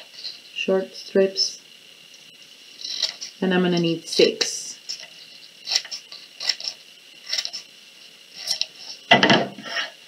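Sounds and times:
scissors cutting paper: 4.9 - 7.6.

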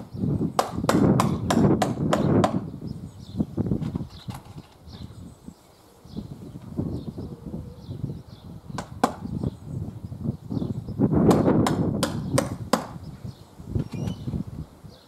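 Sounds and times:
wind rumbling on microphone: 0.0 - 15.0
sharp knocks on roof trim: 0.6 - 2.6, 8.8 - 9.2, 11.3 - 13.0.

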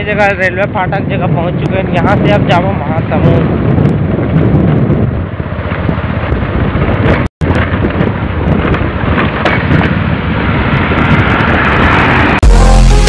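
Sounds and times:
wind rumble on microphone: 0.0 - 12.4
road noise: 0.0 - 13.0
motorcycle engine: 3.5 - 13.0.

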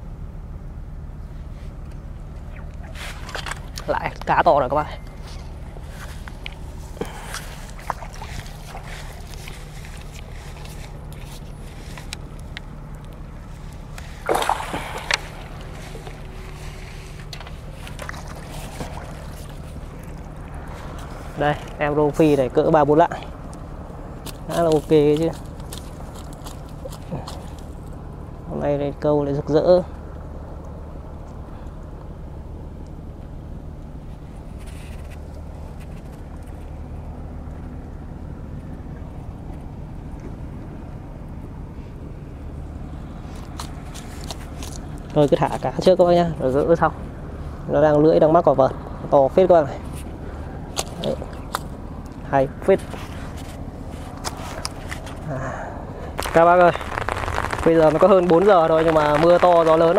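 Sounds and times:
motor humming: 1.8 - 21.9
fish splashing in water: 5.0 - 21.8, 56.0 - 59.9.

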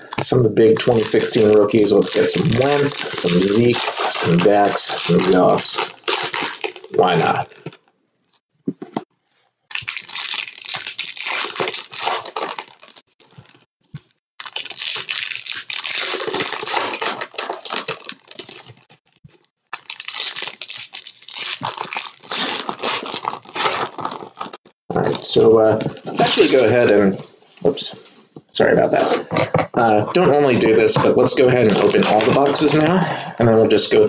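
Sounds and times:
foil wrappers tearing and crinkling: 0.0 - 7.8, 9.7 - 26.7, 31.2 - 32.9.

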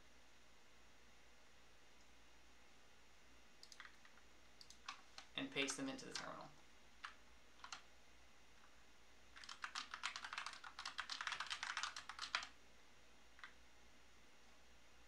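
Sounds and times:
typing on computer keyboard: 3.6 - 5.3, 6.1 - 6.4, 7.0 - 7.8, 9.4 - 12.6.

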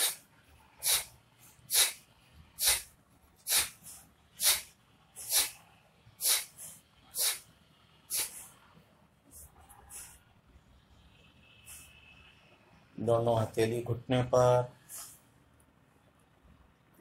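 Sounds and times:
sharp exhalations of breath: 0.8 - 1.1, 1.7 - 2.0, 3.5 - 5.6, 6.2 - 7.5, 8.1 - 8.6.

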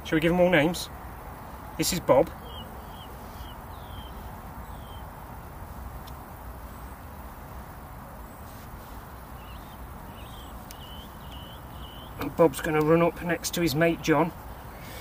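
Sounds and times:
small bird chirping: 2.3 - 5.1, 8.3 - 12.9.

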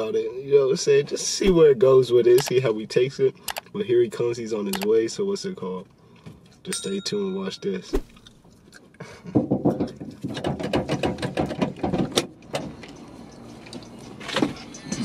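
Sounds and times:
sharp click: 2.4 - 2.6.

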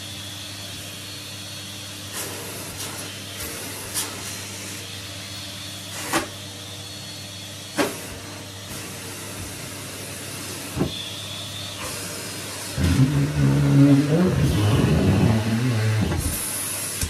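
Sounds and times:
vacuum cleaner running: 0.0 - 17.0.

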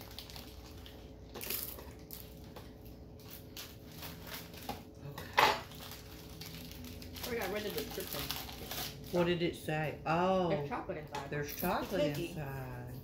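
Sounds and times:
snack wrapper crinkling: 0.0 - 5.0, 5.6 - 9.2.

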